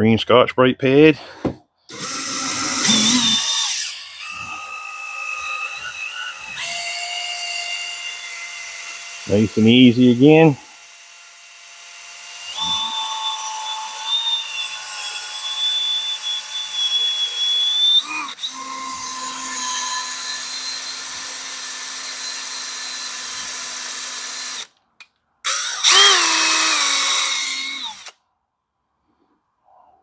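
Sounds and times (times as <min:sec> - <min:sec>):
cordless drill motor whine: 0:01.9 - 0:14.3, 0:16.0 - 0:24.7, 0:25.5 - 0:28.2.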